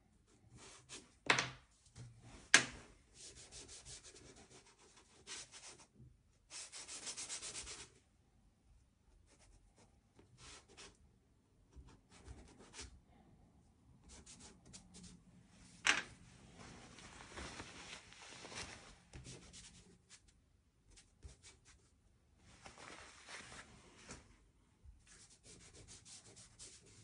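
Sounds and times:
pastel stick scratching on paper: 0:25.1 - 0:27.0.

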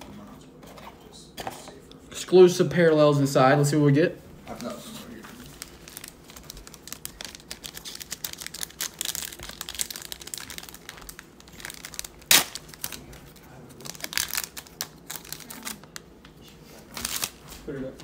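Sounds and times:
foil wrapper crinkling: 0:04.6 - 0:16.1, 0:16.9 - 0:17.6
wrapper tearing open: 0:05.4 - 0:16.0, 0:17.0 - 0:17.4.

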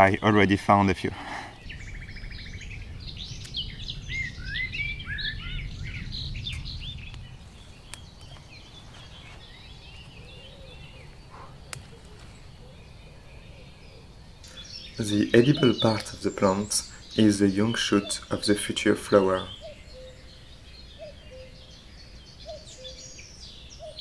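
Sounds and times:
songbirds chirping: 0:00.0 - 0:24.0
low rumble: 0:01.5 - 0:10.2.

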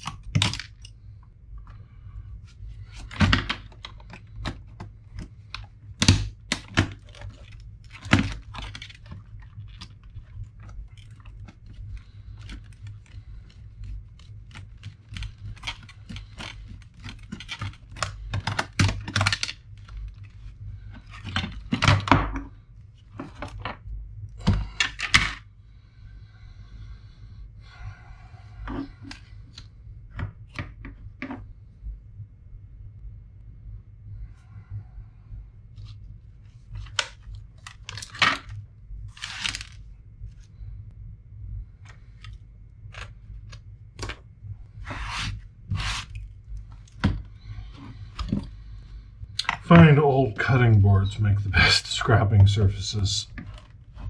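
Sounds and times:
plastic laptop parts clicking and scraping: 0:00.0 - 0:01.1, 0:02.4 - 0:25.4, 0:28.6 - 0:31.4, 0:35.8 - 0:40.5, 0:41.8 - 0:48.8, 0:53.2 - 0:54.0.

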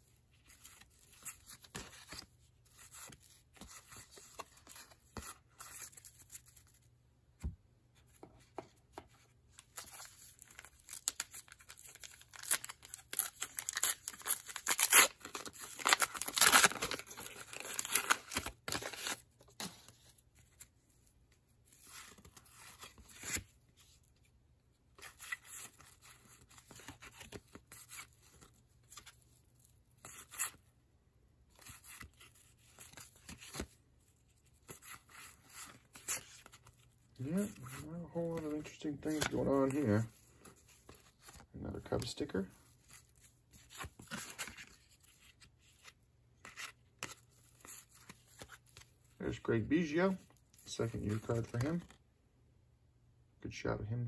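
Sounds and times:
foil wrapper tearing and crinkling: 0:10.6 - 0:19.2
cards flipped by hand: 0:31.5 - 0:33.7, 0:34.6 - 0:42.1, 0:42.8 - 0:49.2.

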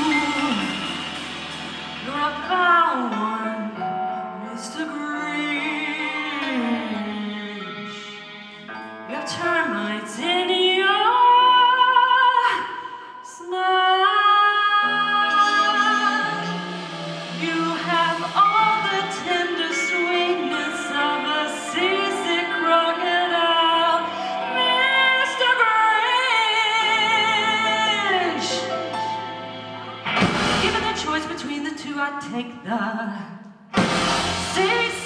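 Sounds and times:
woman singing with vibrato: 0:00.0 - 0:01.3, 0:02.0 - 0:08.3, 0:09.1 - 0:28.8, 0:30.5 - 0:33.4, 0:34.3 - 0:35.0
live band playing: 0:00.0 - 0:09.1, 0:14.6 - 0:31.8, 0:33.8 - 0:35.0.

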